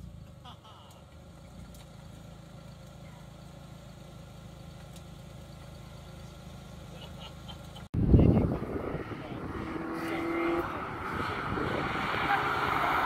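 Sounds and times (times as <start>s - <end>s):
car engine idling: 0.0s - 8.6s.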